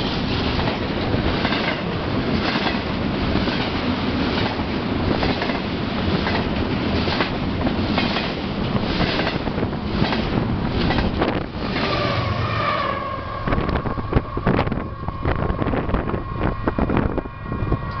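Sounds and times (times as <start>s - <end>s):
wind buffeting microphone: 0.0s - 12.4s, 13.2s - 18.0s
train cars clattering past: 0.0s - 18.0s
high ringing tone: 12.9s - 18.0s.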